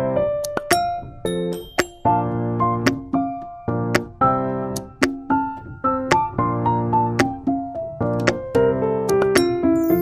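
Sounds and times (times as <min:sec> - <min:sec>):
piano-like keyboard chords: 0:00.0 - 0:10.0.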